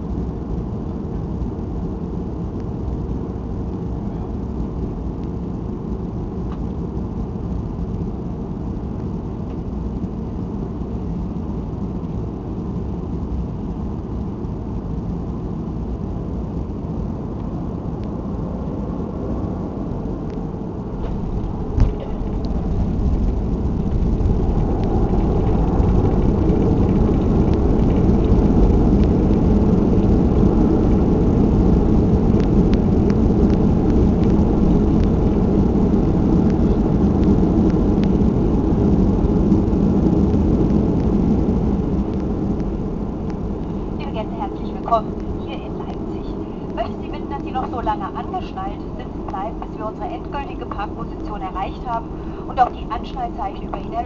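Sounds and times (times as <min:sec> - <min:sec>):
aircraft cabin engine rumble: 0:00.0 - 0:54.0
wheels touching down thump: 0:21.0 - 0:28.4.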